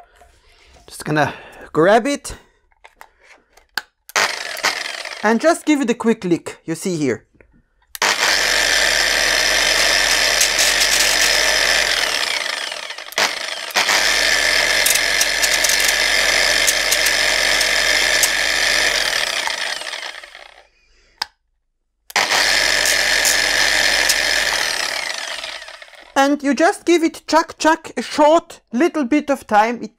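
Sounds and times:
angle grinder sanding plastic: 0:04.1 - 0:05.7, 0:08.0 - 0:20.6, 0:22.1 - 0:26.3.

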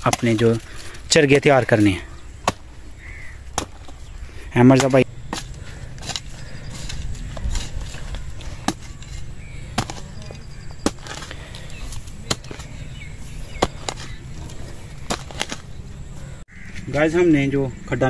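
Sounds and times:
hoe blade chopping into dry soil: 0:02.4 - 0:04.0, 0:04.6 - 0:15.8.

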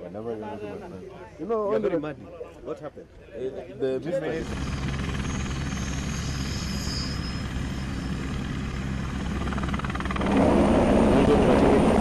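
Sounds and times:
helicopter rotor chop: 0:04.3 - 0:12.0.

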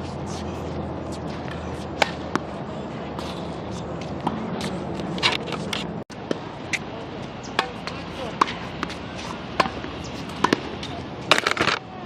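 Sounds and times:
tennis ball bouncing: 0:01.2 - 0:02.6, 0:04.0 - 0:06.8, 0:07.5 - 0:11.8
racket hitting tennis ball: 0:01.2 - 0:06.8, 0:07.5 - 0:11.8.

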